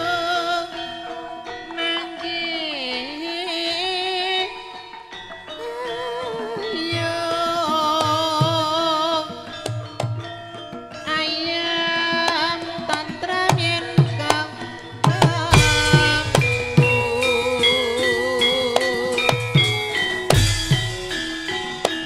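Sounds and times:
woman singing with vibrato: 0.0 - 4.7, 5.6 - 9.5, 11.0 - 21.3
struck bronze metallophones: 0.0 - 22.0
drum strokes: 14.9 - 22.0.

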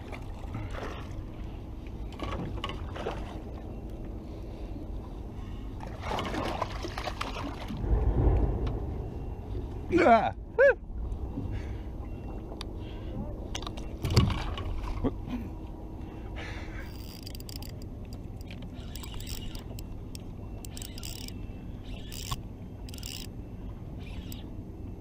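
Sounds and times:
low rumble: 7.1 - 24.1
fishing tackle clicks and scrapes: 16.8 - 23.3, 24.0 - 24.5.

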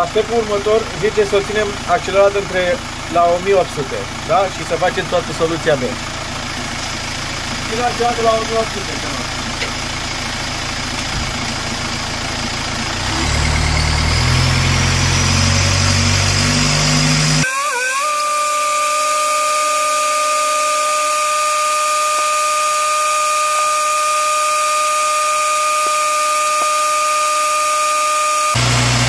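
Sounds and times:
diesel engine at raised revs: 0.0 - 17.4, 19.3 - 29.0
steady high whine: 14.6 - 29.0.

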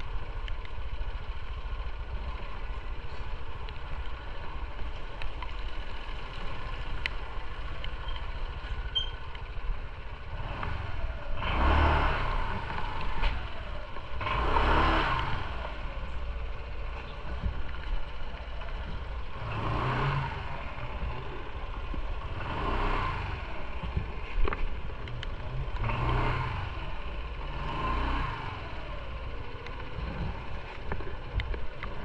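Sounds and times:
motorcycle engine low rumble: 0.0 - 32.0.

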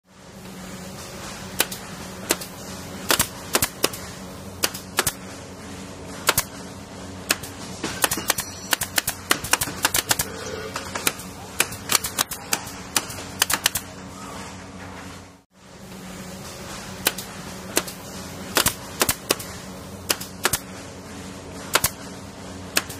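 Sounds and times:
steady low hum: 0.1 - 22.9
nail gun firing: 1.6 - 2.5, 3.1 - 4.0, 4.6 - 5.2, 6.3 - 6.5, 7.3 - 10.3, 11.0 - 13.8, 17.0 - 17.2, 17.8 - 19.5, 20.1 - 20.6, 21.7 - 22.0.

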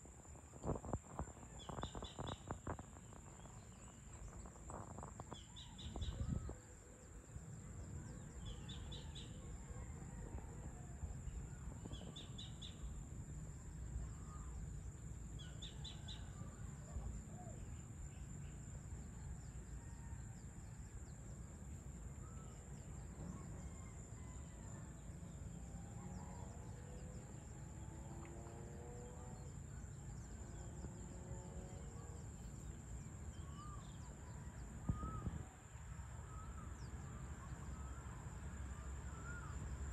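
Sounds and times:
high insect whine: 0.1 - 9.6, 20.6 - 39.9.

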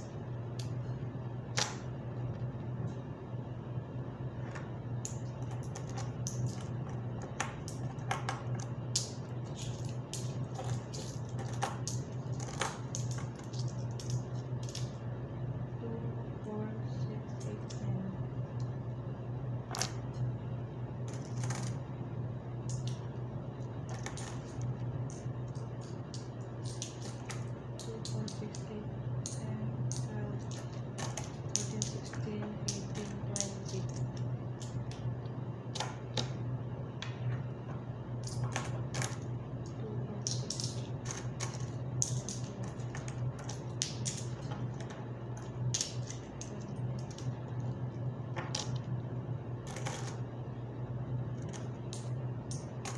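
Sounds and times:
low hum: 0.0 - 52.9
coins clicking and clinking: 5.0 - 15.0, 21.1 - 21.8, 23.9 - 35.0, 38.2 - 39.3, 40.2 - 47.3, 49.6 - 50.2, 51.5 - 52.9.

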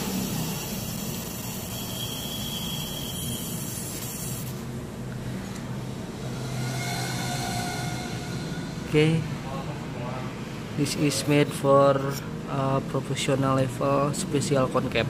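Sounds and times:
high laser hiss: 0.0 - 4.6
laser marking machine noise: 0.0 - 4.7.

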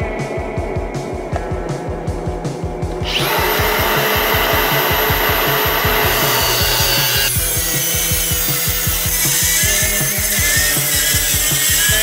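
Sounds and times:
angle grinder cutting steel: 3.1 - 12.0.

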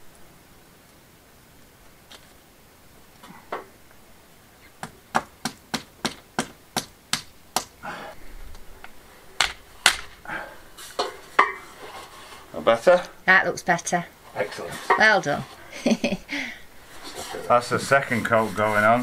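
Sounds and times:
sharp knocks on wall: 4.8 - 7.7.

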